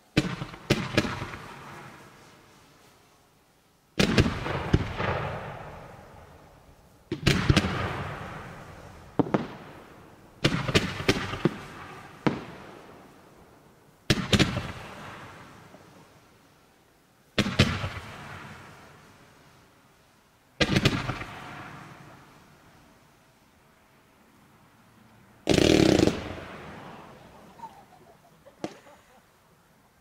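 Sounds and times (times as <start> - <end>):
fireworks bangs: 0.0 - 2.9, 4.0 - 13.4, 14.0 - 16.5, 17.3 - 19.7, 20.6 - 23.2, 25.4 - 29.0.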